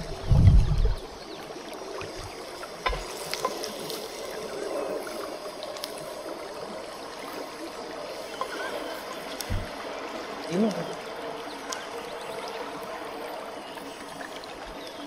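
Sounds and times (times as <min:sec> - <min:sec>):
campfire crackles: 0:00.0 - 0:15.0
running water: 0:00.0 - 0:15.0
soft low thump: 0:09.5 - 0:09.7.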